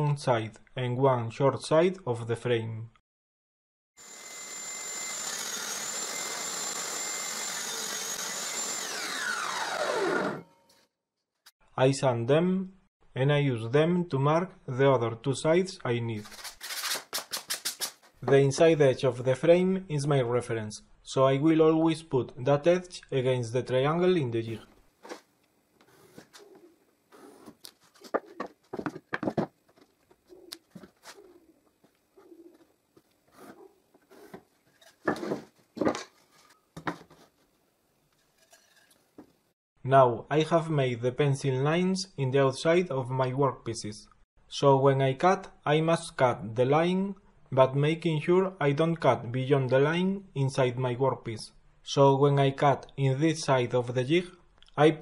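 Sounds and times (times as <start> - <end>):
saw blade winding down: 4.0 - 10.7
table saw whining: 4.0 - 10.8.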